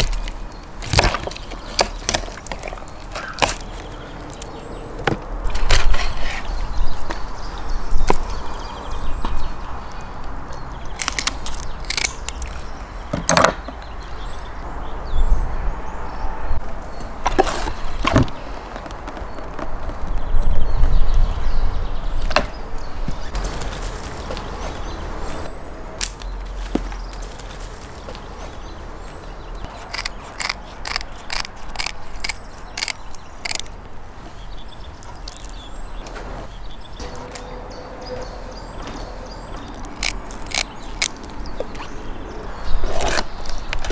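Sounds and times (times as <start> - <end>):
scissors snipping: 10.9 - 12.6, 29.7 - 33.7, 39.7 - 41.9.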